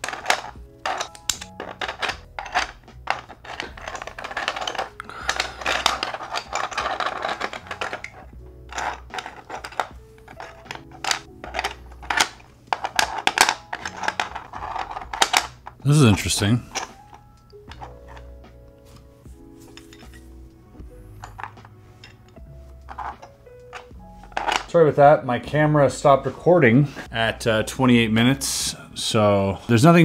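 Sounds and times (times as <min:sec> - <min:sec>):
plastic puzzle pieces clattering: 0:00.0 - 0:18.4, 0:21.2 - 0:21.8, 0:22.8 - 0:24.7
light background music: 0:00.0 - 0:30.0.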